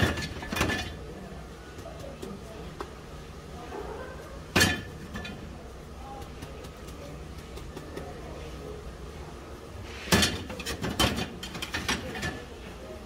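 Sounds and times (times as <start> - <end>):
low background hum: 0.0 - 13.0
metal tongs clanking on steel tray: 4.5 - 5.5.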